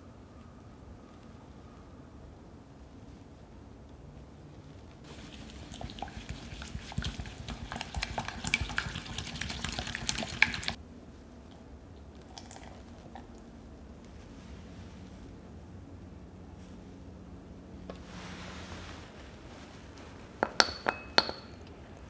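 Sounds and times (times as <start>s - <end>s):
spatula stirring wet mixture: 5.1s - 10.8s
spatula tapping glass bowl: 20.4s - 21.6s.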